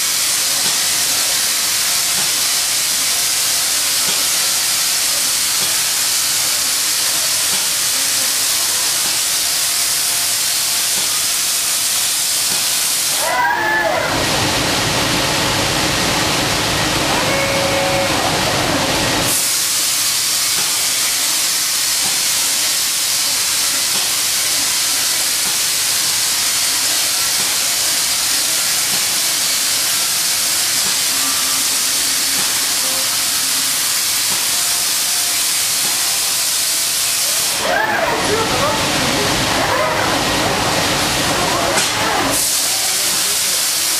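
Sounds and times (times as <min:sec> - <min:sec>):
spray gun hissing: 0:19.3 - 0:37.6.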